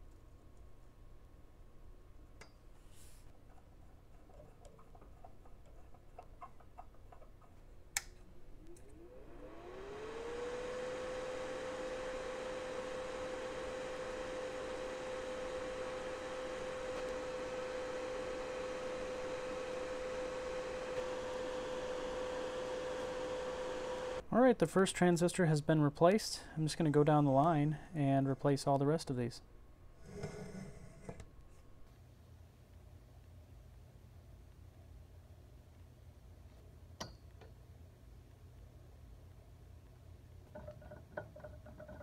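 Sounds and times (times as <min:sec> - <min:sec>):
electric fan motor humming: 0:04.1 - 0:31.8.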